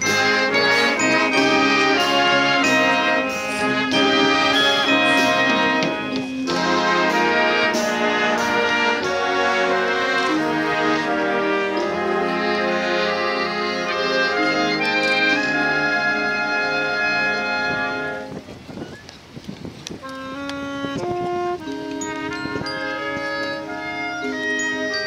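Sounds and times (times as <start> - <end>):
wind band playing chords: 0.0 - 18.6, 20.0 - 25.0.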